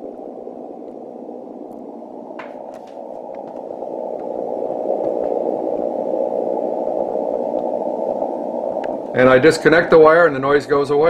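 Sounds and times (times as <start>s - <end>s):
radio static hiss: 0.0s - 11.0s
faint ticks: 7.4s - 7.8s, 8.7s - 9.2s.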